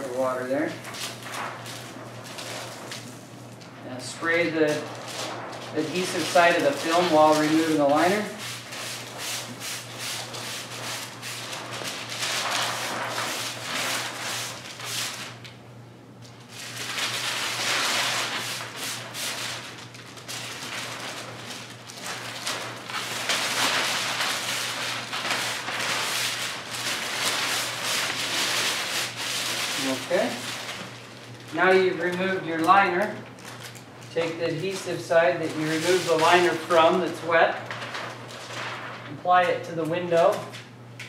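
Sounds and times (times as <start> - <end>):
plastic liner peeling and crinkling: 0.0 - 15.6, 16.2 - 40.7
spray bottle misting: 6.1 - 15.2.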